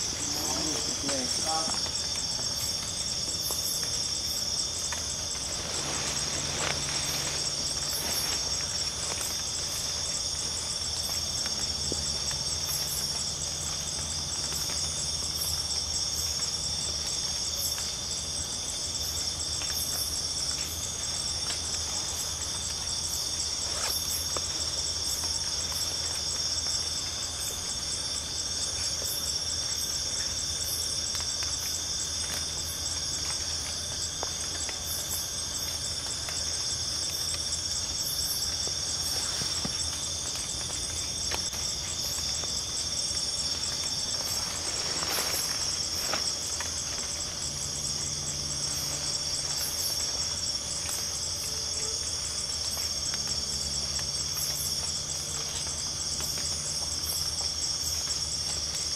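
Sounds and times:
insects trilling: 0.0s - 58.9s.

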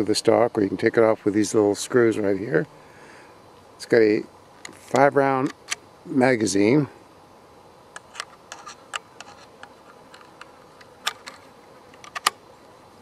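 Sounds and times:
rifle magazine clicking and scraping: 8.0s - 12.4s.

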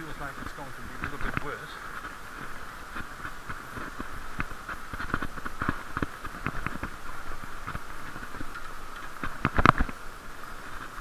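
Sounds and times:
steady hiss: 0.0s - 11.0s.

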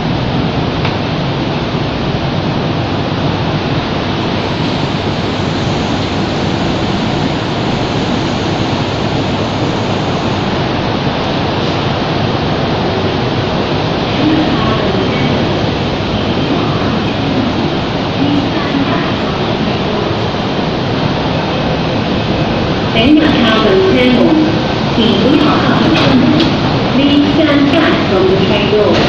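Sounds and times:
steady rushing noise: 0.0s - 29.0s.

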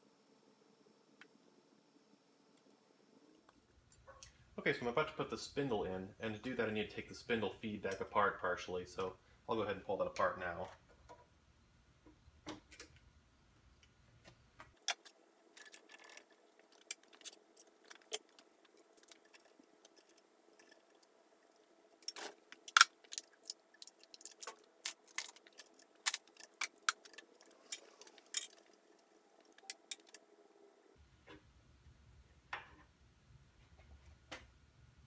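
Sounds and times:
metal tools clicking and clinking: 14.8s - 21.1s, 22.0s - 30.2s.

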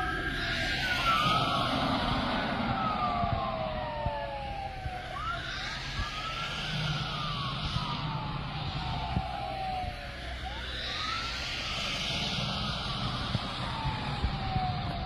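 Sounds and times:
police sirens wailing: 0.0s - 15.0s.

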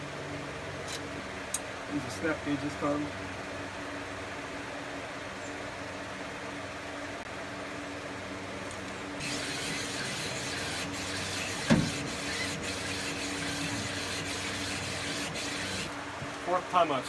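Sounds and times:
parts washer humming: 9.1s - 16.5s.

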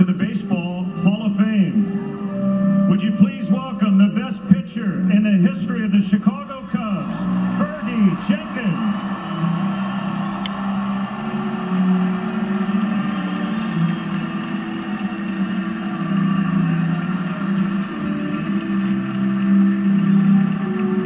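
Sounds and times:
crowd cheering and clapping: 6.2s - 21.0s.

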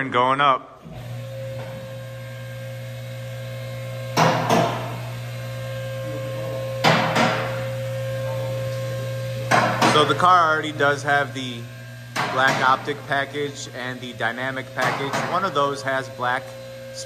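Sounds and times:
hydraulic pump motor humming: 0.8s - 17.0s.

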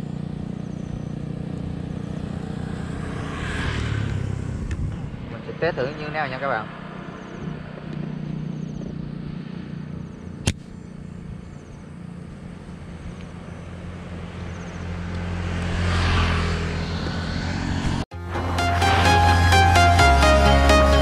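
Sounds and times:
passing vehicle noise: 0.0s - 21.0s
road noise: 0.0s - 21.0s
vehicle engine running: 0.0s - 21.0s.

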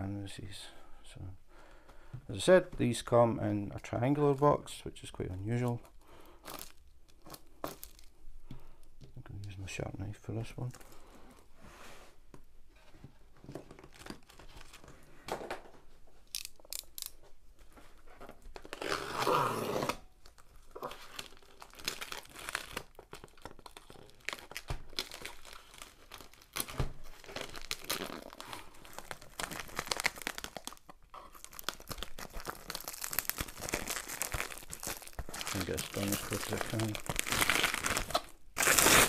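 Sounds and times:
plastic wrapping crinkling and tearing: 5.6s - 8.1s, 13.6s - 14.9s, 18.5s - 39.0s.

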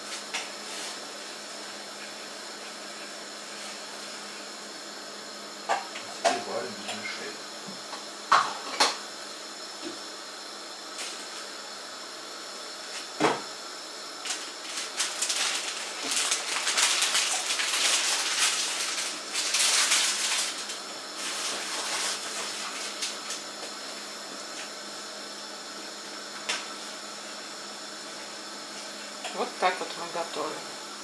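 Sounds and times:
crusty bread crackling and rustling: 14.2s - 23.5s.

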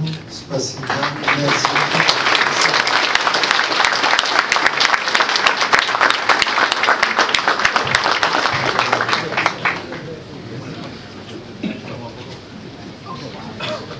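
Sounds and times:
audience applauding: 0.8s - 10.2s.

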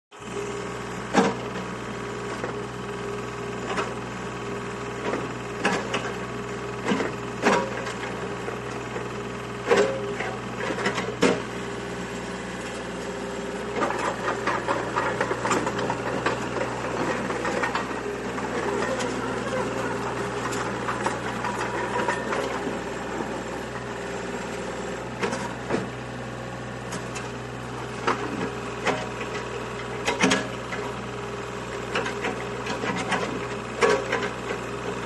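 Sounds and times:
mini excavator running: 0.2s - 35.0s.

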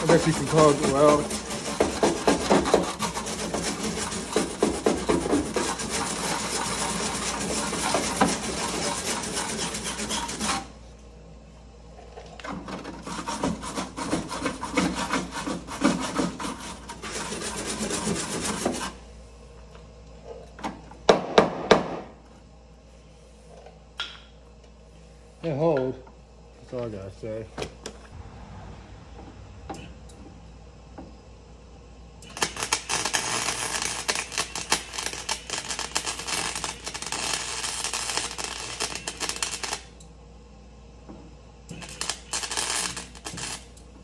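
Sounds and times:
welding arc crackling: 0.0s - 10.4s, 32.2s - 40.0s, 41.7s - 43.8s.

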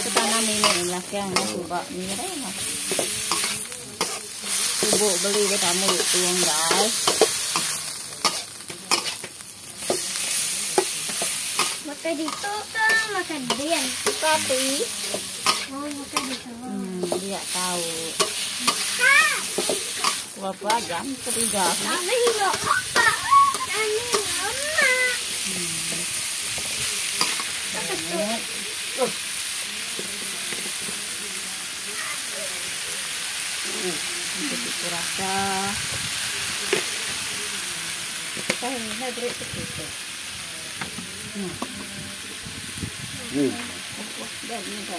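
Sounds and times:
food sizzling in a wok: 0.0s - 44.9s
metal spatula scraping a pan: 2.8s - 16.5s.

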